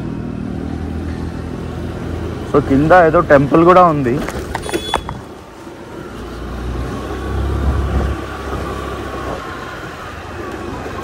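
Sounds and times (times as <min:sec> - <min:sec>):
traffic background noise: 0:00.0 - 0:11.0
vehicle passing rumble: 0:05.2 - 0:11.0.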